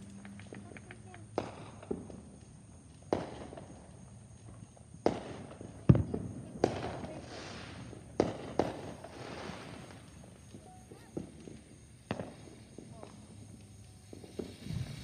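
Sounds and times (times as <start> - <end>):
fireworks banging: 0.0 - 15.0
firework hiss: 5.0 - 15.0.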